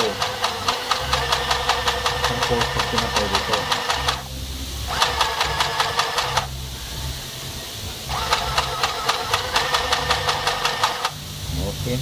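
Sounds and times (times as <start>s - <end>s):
sewing machine running: 0.0s - 4.2s, 4.9s - 6.5s, 8.1s - 11.1s.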